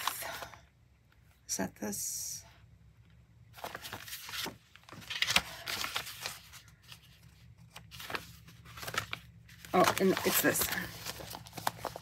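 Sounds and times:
plastic bag crinkling: 7.9 - 12.0.

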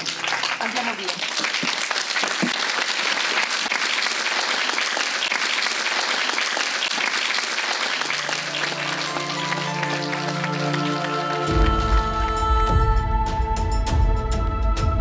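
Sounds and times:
music: 0.0 - 1.6, 8.0 - 15.0
audience applauding: 0.0 - 12.4.

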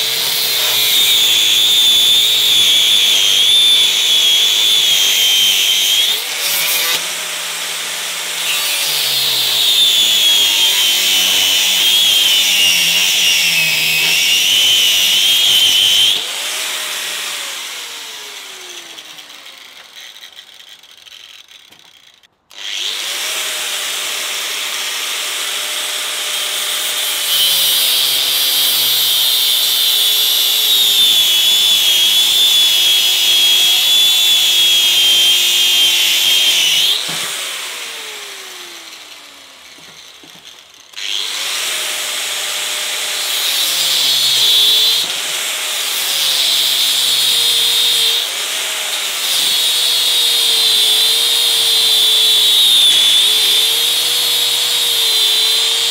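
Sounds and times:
angle grinder cutting metal: 0.0 - 55.9.

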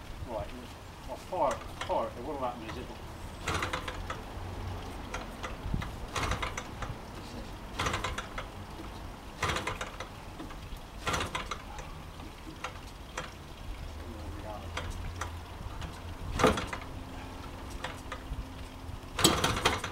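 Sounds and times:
model engine turned over clicking: 3.4 - 4.2, 5.1 - 7.0, 7.8 - 8.5, 9.4 - 11.7, 19.2 - 19.9.

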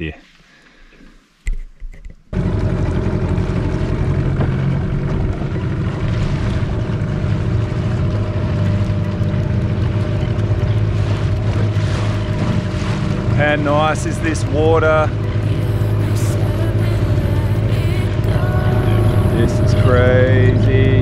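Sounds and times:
outboard motor running: 2.3 - 21.0
wind on microphone: 18.3 - 21.0.

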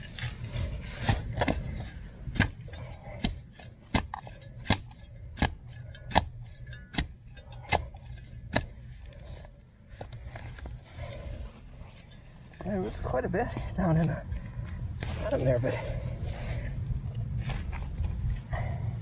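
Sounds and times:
spade chopping into soil: 2.3 - 8.7.

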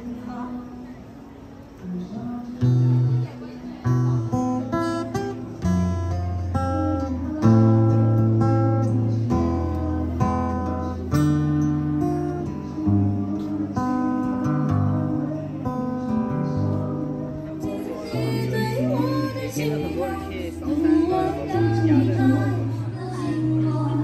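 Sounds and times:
acoustic guitar music: 0.0 - 24.0.

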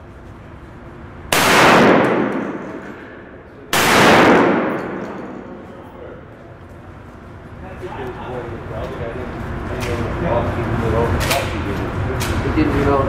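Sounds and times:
handgun shots with echo: 1.3 - 5.7.

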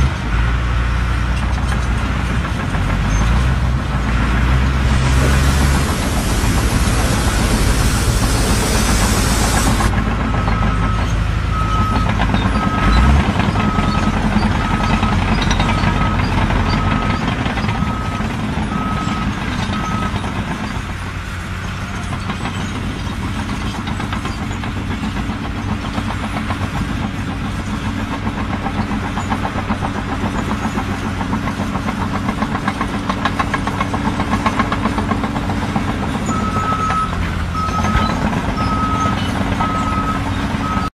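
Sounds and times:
heavy vehicle engine running: 0.0 - 40.9
reversing alarm beeping: 36.3 - 40.9.

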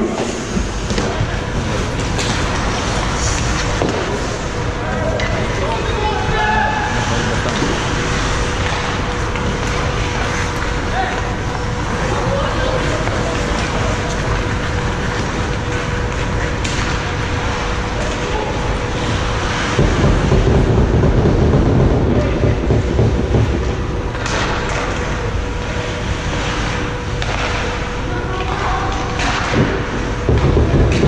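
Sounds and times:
steady rumbling noise: 0.0 - 31.0
sharp knocks: 19.7 - 25.0.

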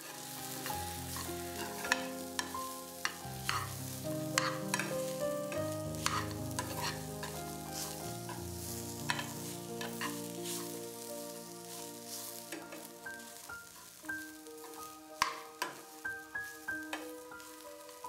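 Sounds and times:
low sizzle of frying: 0.0 - 18.0
soft background music: 0.0 - 18.0
spoon scraping a steel pan: 4.3 - 5.0, 6.0 - 7.4, 9.1 - 10.7.

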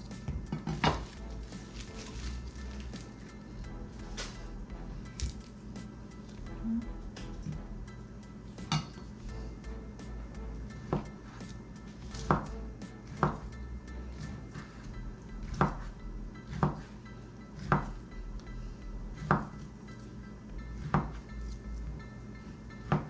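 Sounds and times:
faint background music: 0.0 - 23.0
knife chopping on cutting board: 10.8 - 16.9, 17.6 - 18.0, 19.2 - 19.7, 20.8 - 21.2.

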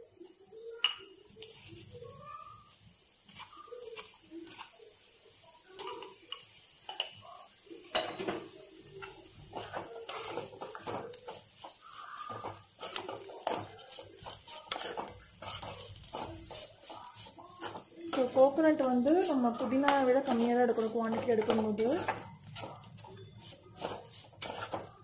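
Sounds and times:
spoon scraping metal pan: 3.3 - 4.7, 8.0 - 25.0
faint animal calls: 11.8 - 12.5.

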